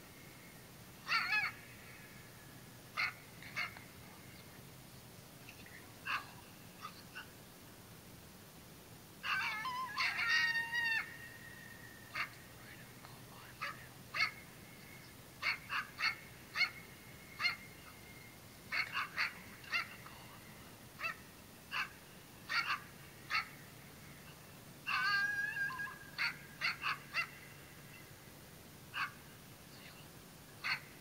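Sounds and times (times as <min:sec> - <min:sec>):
short animal calls: 0:00.1 - 0:04.4, 0:06.0 - 0:07.4, 0:09.2 - 0:28.2, 0:28.9 - 0:29.4, 0:30.6 - 0:31.0
long wavering animal call: 0:01.0 - 0:02.4, 0:09.2 - 0:12.5, 0:24.8 - 0:28.1.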